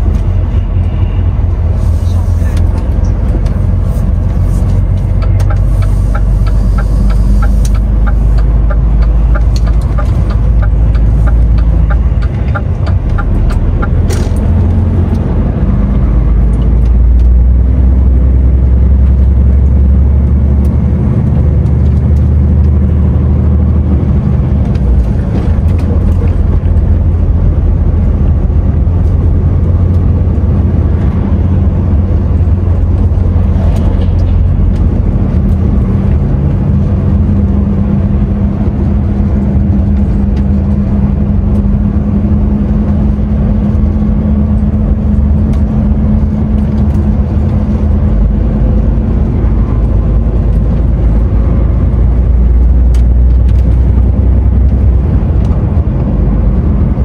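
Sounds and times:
diesel truck engine droning: 0:00.0 - 0:57.0
road noise: 0:00.0 - 0:57.0
regular ticking: 0:04.9 - 0:14.5.

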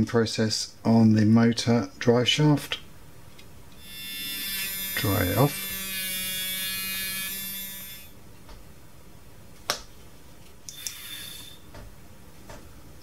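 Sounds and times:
small electric motor whining: 0:03.8 - 0:08.2, 0:10.7 - 0:11.7.

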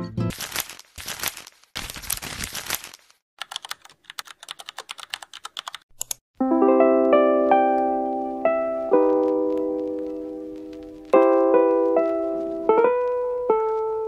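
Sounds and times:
paper tearing: 0:00.3 - 0:03.2
keyboard typing clicks: 0:03.4 - 0:06.2
piano music: 0:06.4 - 0:14.0.

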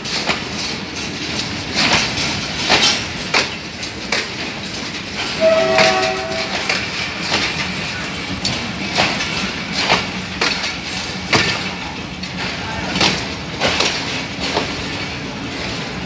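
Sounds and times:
train wheels clacking on rail joints: 0:00.0 - 0:16.0
train horn chord: 0:05.4 - 0:06.8.

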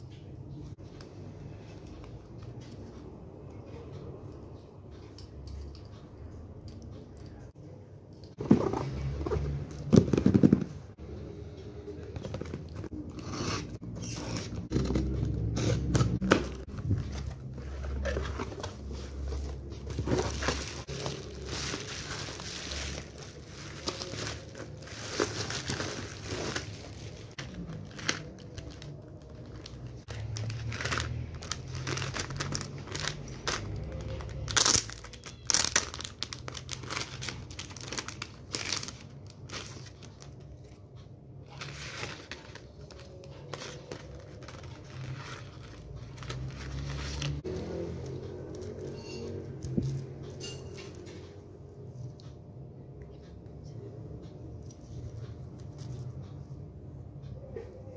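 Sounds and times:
bubble wrap crinkling: 0:13.6 - 0:40.4, 0:41.6 - 0:47.5
plastic packaging handled: 0:13.6 - 0:40.4, 0:41.5 - 0:47.5.

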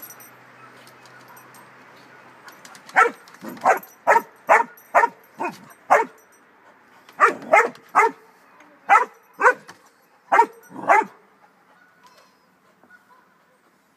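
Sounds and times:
dog barking: 0:02.9 - 0:06.2, 0:07.2 - 0:08.2, 0:08.9 - 0:09.7, 0:10.3 - 0:11.2.

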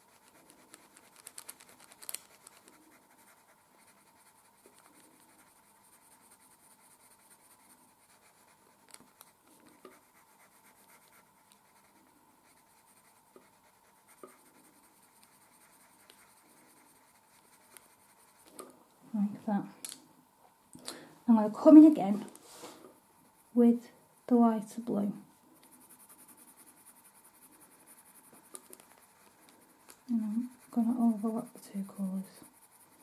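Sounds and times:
pencil scratching on paper: 0:00.0 - 0:18.7, 0:25.6 - 0:33.0
pencil ticks: 0:00.0 - 0:18.8, 0:25.6 - 0:33.0.

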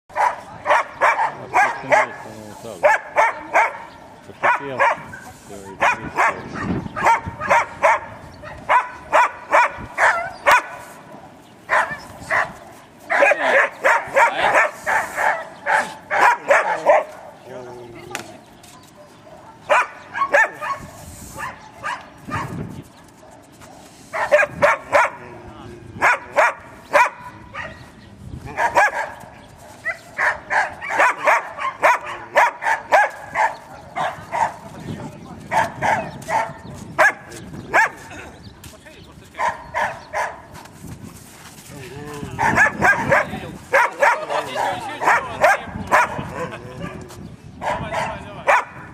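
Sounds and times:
dog yapping: 0:05.8 - 0:10.8, 0:11.7 - 0:17.3, 0:19.4 - 0:22.6, 0:29.8 - 0:34.6, 0:39.4 - 0:40.4, 0:42.4 - 0:47.0, 0:47.6 - 0:48.8.

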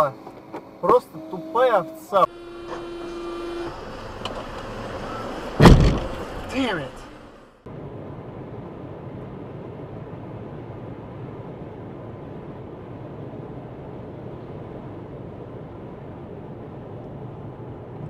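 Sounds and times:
car cabin road and engine noise: 0:00.0 - 0:18.0.

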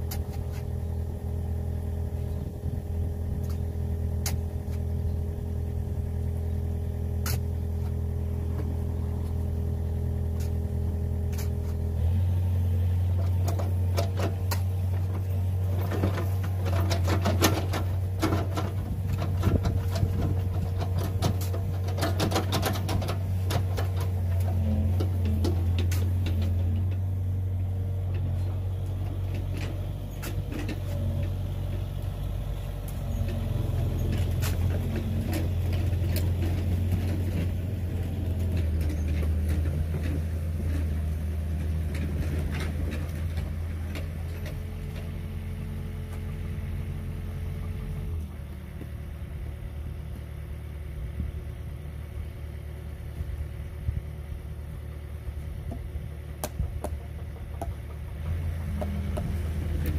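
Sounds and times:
excavator engine idling: 0:00.0 - 0:59.9
shovel scraping stony soil: 0:07.2 - 0:08.0, 0:10.3 - 0:12.0.

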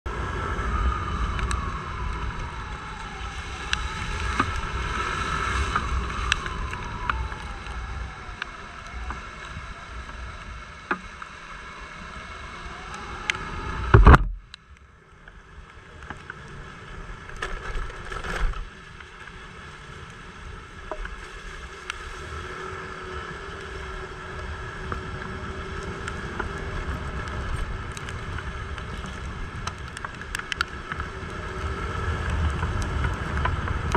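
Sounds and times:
wind and tyre noise: 0:00.0 - 0:33.9
scooter engine whine: 0:00.1 - 0:14.4, 0:21.6 - 0:33.9
loud thump: 0:13.9 - 0:14.4.

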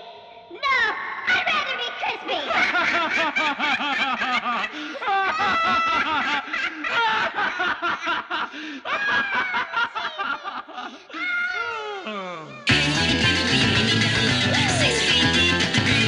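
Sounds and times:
person laughing: 0:02.5 - 0:11.0.

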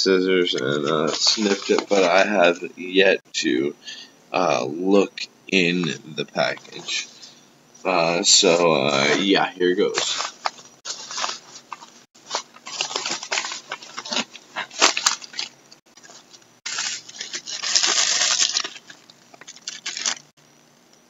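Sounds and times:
wrapping crinkling and rustling: 0:00.7 - 0:02.4, 0:08.9 - 0:20.4.

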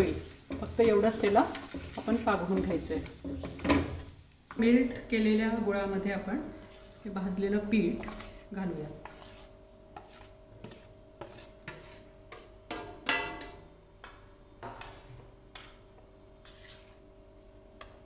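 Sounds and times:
spatula scraping steel bowl: 0:00.5 - 0:03.1, 0:07.9 - 0:12.8, 0:14.7 - 0:15.8, 0:16.4 - 0:17.0.

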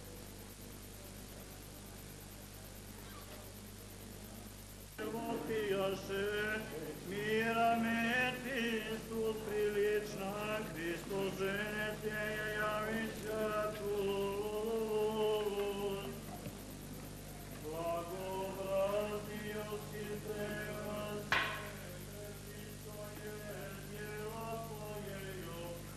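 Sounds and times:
steady low hum: 0:00.0 - 0:25.9
voices singing a slow chant: 0:05.0 - 0:16.6, 0:17.4 - 0:25.9.

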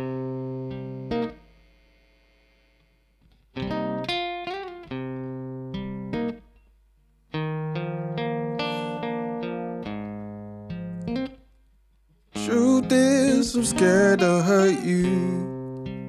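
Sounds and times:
acoustic guitar chords: 0:07.3 - 0:11.4, 0:12.3 - 0:16.0.

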